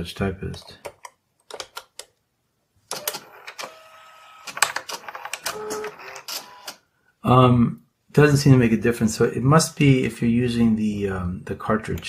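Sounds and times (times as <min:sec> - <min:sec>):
print head whirring and clicking: 0:02.9 - 0:06.8.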